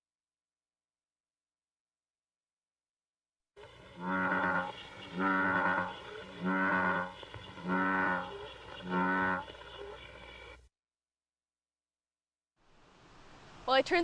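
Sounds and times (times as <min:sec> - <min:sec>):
bullfrog croaking: 0:03.6 - 0:10.6.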